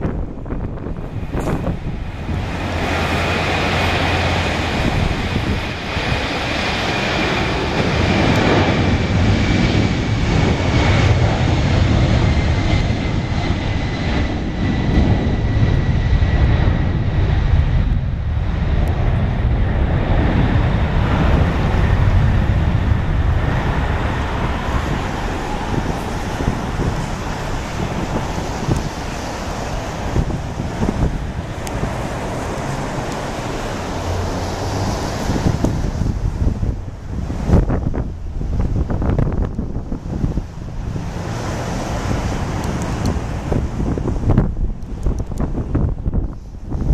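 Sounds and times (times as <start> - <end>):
jet engines roaring at takeoff: 0.0 - 46.9
jet fan whine: 0.0 - 46.9.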